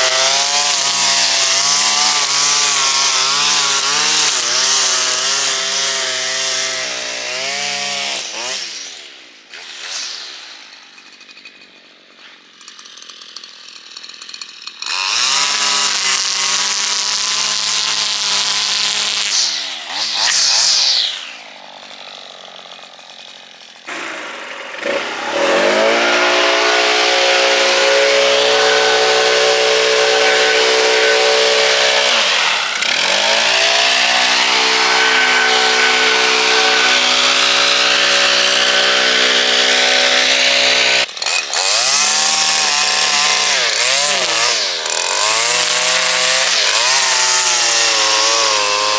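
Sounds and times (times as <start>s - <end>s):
leaf blower running: 0.0s - 48.9s
line trimmer cutting grass: 0.0s - 48.9s.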